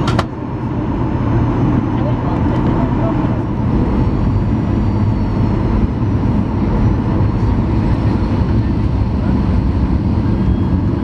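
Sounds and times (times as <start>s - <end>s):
jet engine roar: 0.0s - 11.0s
faint high whine: 3.8s - 11.0s.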